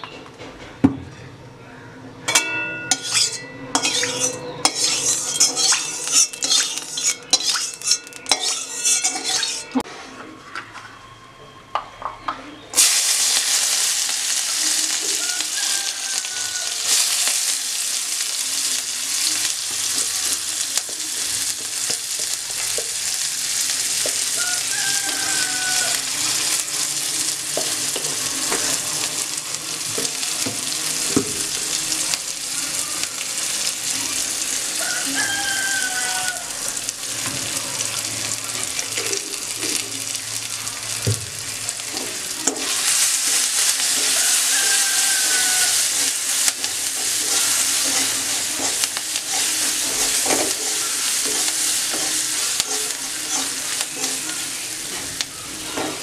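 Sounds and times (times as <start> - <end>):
spoon knocking metal wok: 2.3 - 9.6
onion frying in hot oil: 2.9 - 9.8, 12.7 - 56.0.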